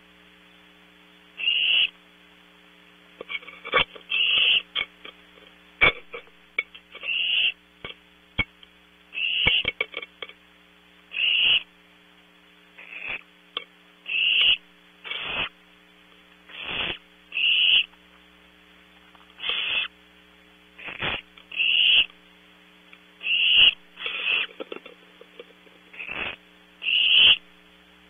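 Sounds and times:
faint electrical hum: 0:00.0 - 0:28.0
owlets hissing begging calls: 0:01.4 - 0:02.0, 0:04.1 - 0:04.8, 0:07.0 - 0:07.6, 0:09.2 - 0:09.8, 0:11.1 - 0:11.7, 0:12.8 - 0:13.2, 0:14.0 - 0:15.5, 0:16.5 - 0:17.9, 0:19.4 - 0:20.0, 0:20.8 - 0:22.1, 0:23.2 - 0:24.8, 0:25.9 - 0:27.4.

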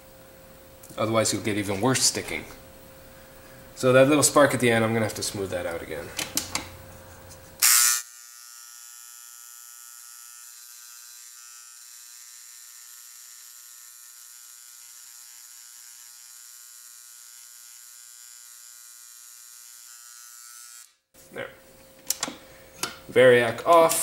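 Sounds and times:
electric engraver buzzing: 0:07.6 - 0:21.0.

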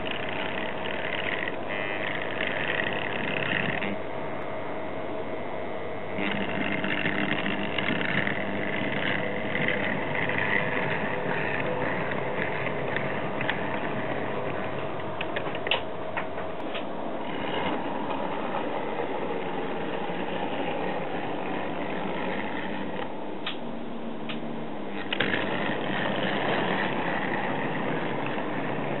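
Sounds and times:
model train whirring: 0:00.0 - 0:04.0, 0:06.0 - 0:23.6, 0:24.8 - 0:29.0
sharp clicks: 0:23.0 - 0:23.7.

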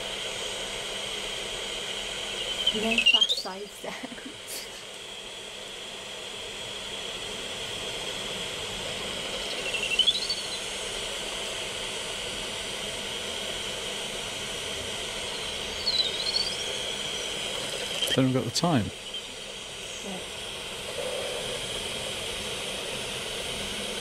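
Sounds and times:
steady hiss: 0:00.0 - 0:24.0
short rising and falling chirps: 0:02.3 - 0:03.6, 0:09.3 - 0:10.8, 0:15.2 - 0:20.0.

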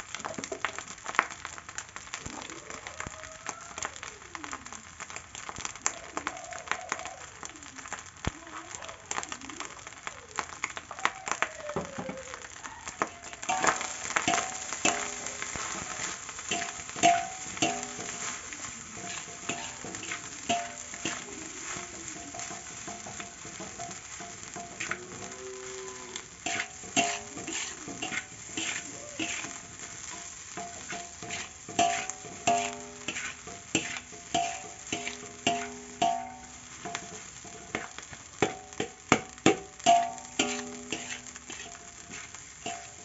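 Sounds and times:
rice sizzling: 0:00.0 - 0:43.0
metal spatula scraping wok: 0:13.0 - 0:43.0.

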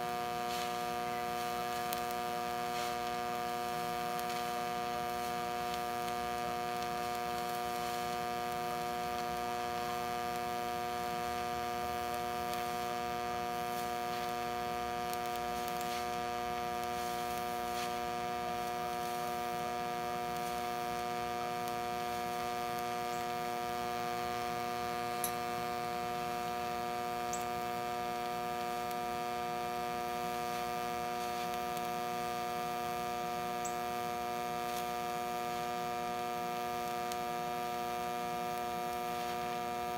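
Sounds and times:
welder electrical hum: 0:00.0 - 0:39.9.

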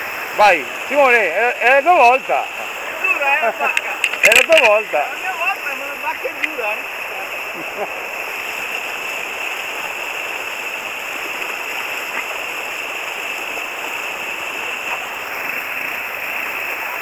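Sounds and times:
river rushing over rapids: 0:00.0 - 0:17.0.

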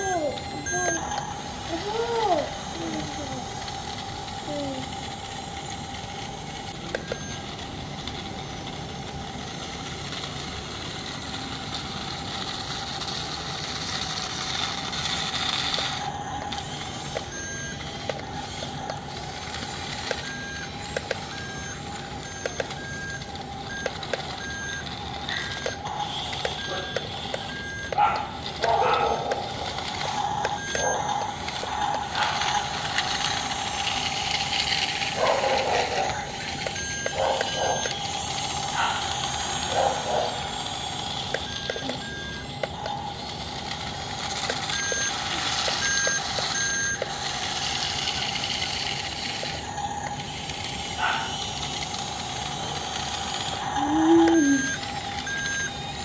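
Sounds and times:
toy bulldozer motor whine: 0:00.0 - 0:56.0
short beeps: 0:53.8 - 0:55.8.

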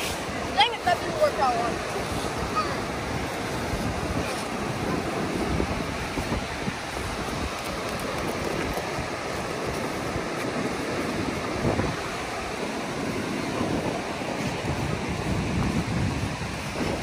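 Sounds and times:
ocean surf rushing: 0:00.0 - 0:17.0
wind buffeting microphone: 0:00.0 - 0:17.0.

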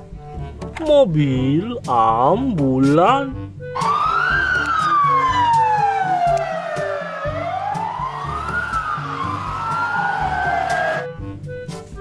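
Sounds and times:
music with a steady beat: 0:00.0 - 0:12.0
ambulance siren wailing: 0:03.7 - 0:11.2.

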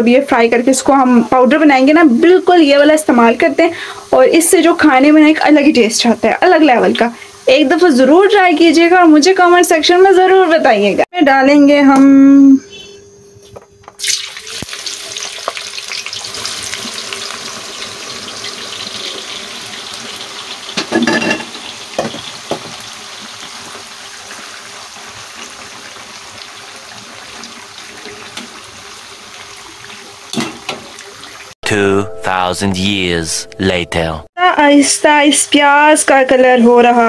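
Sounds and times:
onions sizzling in hot oil: 0:00.1 - 0:10.9, 0:14.0 - 0:31.5.

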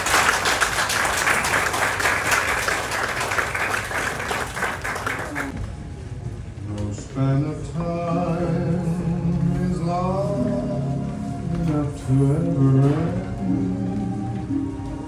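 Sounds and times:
people applauding: 0:00.0 - 0:05.5.

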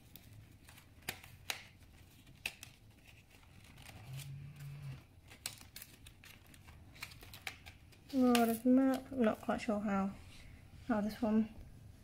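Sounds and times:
card paper clicks: 0:00.0 - 0:04.3, 0:05.2 - 0:08.6
stiff paper rustling: 0:00.0 - 0:09.4.

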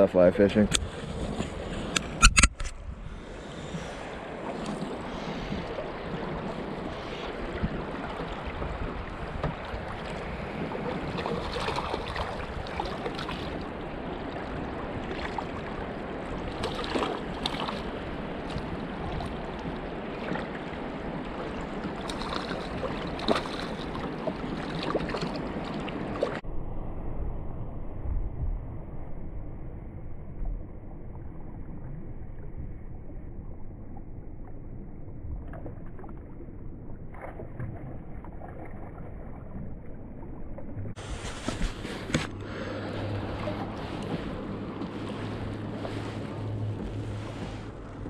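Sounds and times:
water lapping against kayak: 0:00.0 - 0:26.4, 0:31.3 - 0:48.0
wind on microphone: 0:00.0 - 0:32.8, 0:40.9 - 0:48.0
sharp splashes: 0:04.5 - 0:26.4.

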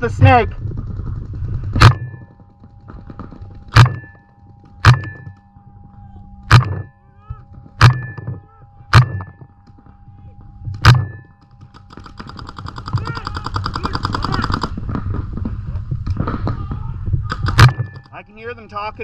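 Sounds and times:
paintball marker shots: 0:06.5 - 0:06.8, 0:17.3 - 0:18.0.

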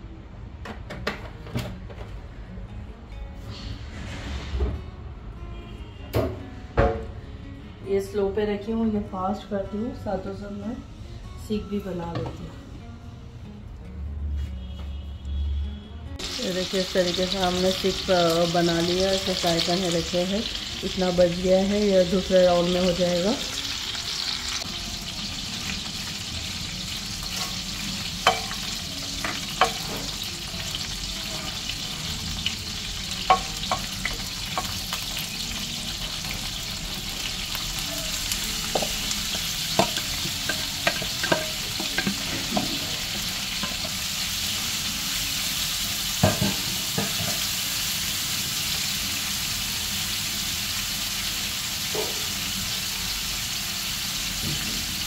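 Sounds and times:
oil sizzling: 0:16.2 - 0:55.0
bowl and spatula clinking on pans: 0:39.8 - 0:42.9.

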